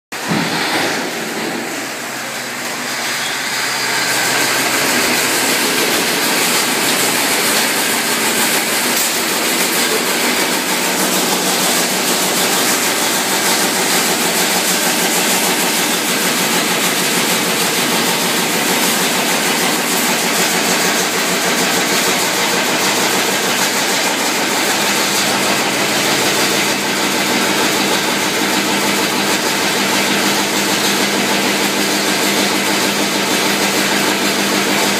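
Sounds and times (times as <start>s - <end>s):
machinery running: 0.2s - 34.9s.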